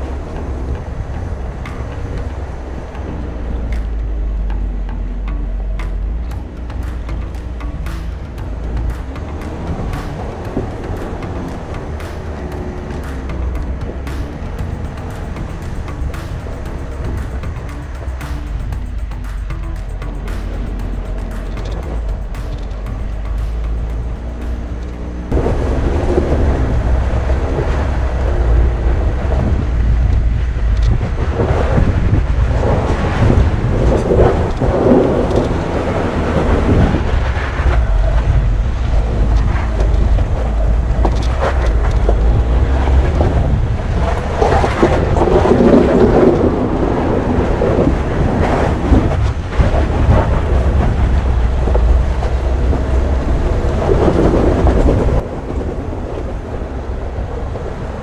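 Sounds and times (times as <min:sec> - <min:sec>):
van rumbling on rough track: 0:00.0 - 0:58.0
sharp knocks: 0:00.4 - 0:25.5.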